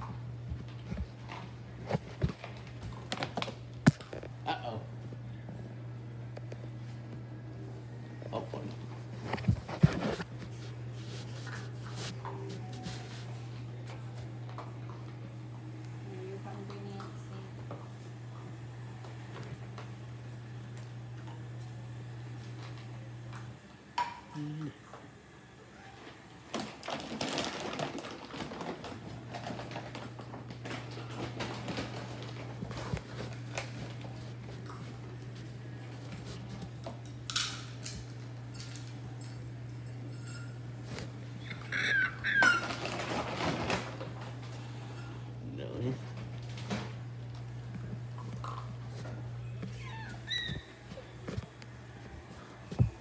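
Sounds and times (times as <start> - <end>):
dog eating crunches and clicks: 0.0 - 4.4, 26.4 - 39.4, 40.9 - 44.6, 45.9 - 53.0.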